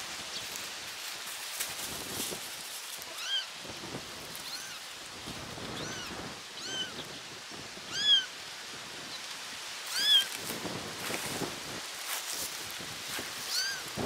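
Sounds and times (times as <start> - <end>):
kitten meowing: 5.8 - 6.9, 9.9 - 10.3, 13.5 - 13.8.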